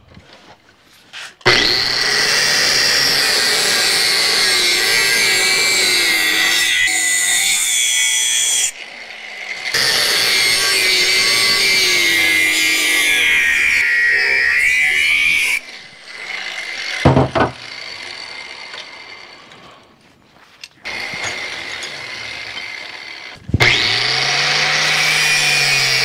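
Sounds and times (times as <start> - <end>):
angle grinder cutting steel: 1.4 - 19.9, 20.8 - 26.0.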